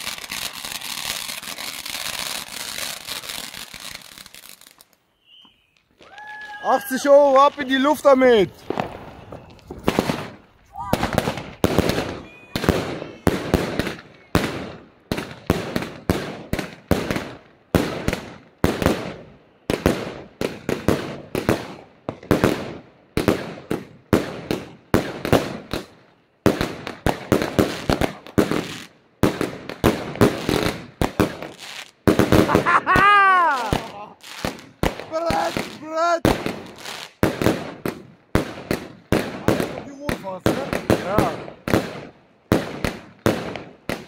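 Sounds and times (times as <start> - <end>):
firework battery bangs: 7.4 - 19.2.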